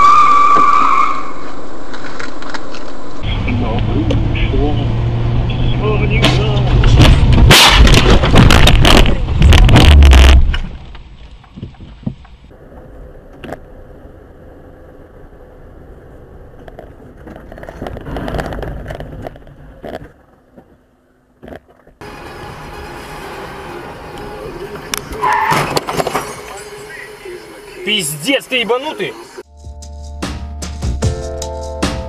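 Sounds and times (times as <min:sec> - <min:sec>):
car noise: 0:00.0 - 0:30.9
loud distorted crash impact: 0:06.9 - 0:10.6.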